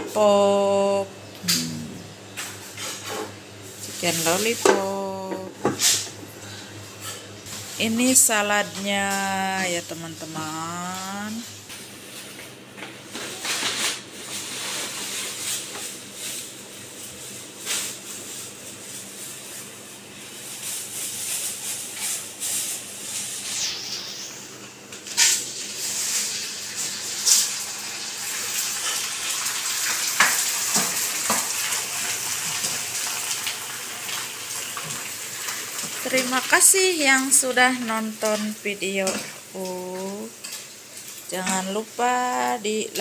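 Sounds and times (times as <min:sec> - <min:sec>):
onions sizzling in oil: 0:17.3 - 0:43.0.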